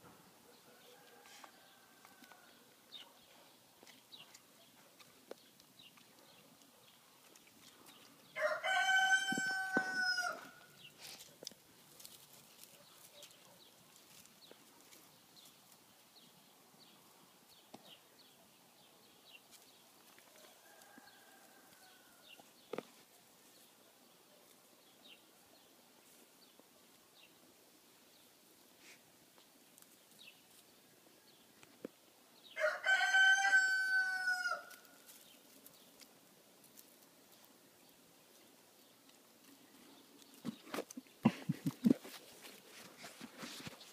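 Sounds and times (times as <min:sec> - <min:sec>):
rooster crowing: 0:08.4 - 0:10.6, 0:20.4 - 0:22.3, 0:32.6 - 0:34.8
faint scuffs and ticks: 0:41.6 - 0:43.9.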